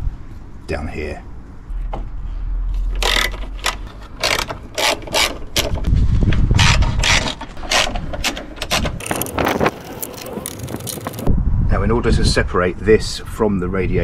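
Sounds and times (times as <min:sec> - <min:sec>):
socket ratchet clicking: 0:03.0 - 0:05.9.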